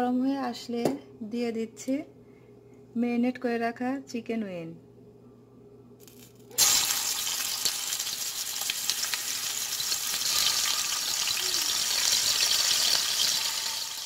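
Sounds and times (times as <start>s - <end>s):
chicken sizzling in hot oil: 6.6s - 14.0s.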